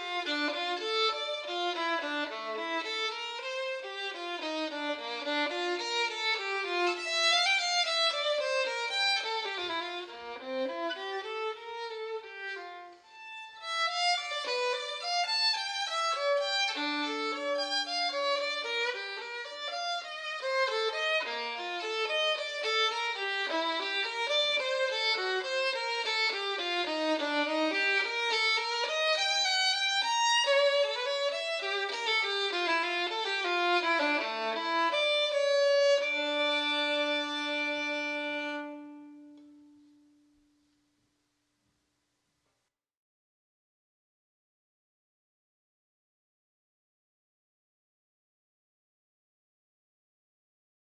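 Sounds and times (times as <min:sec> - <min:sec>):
solo violin melody: 0:00.0 - 0:40.3.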